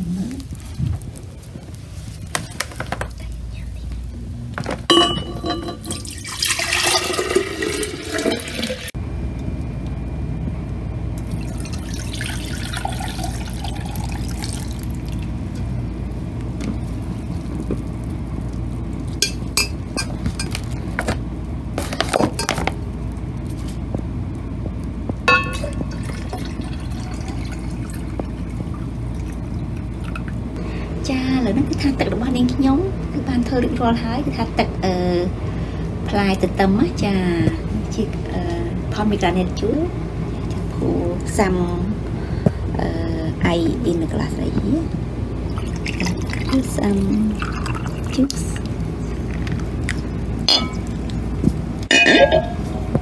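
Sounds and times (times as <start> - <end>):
steady low hum: 0.0 - 53.0
glass clinks: 4.9 - 6.0, 25.3 - 25.8, 50.5 - 50.9, 51.9 - 52.6
juice pouring into glass pitcher: 5.7 - 8.9, 11.2 - 15.4, 25.4 - 30.4, 45.5 - 51.2.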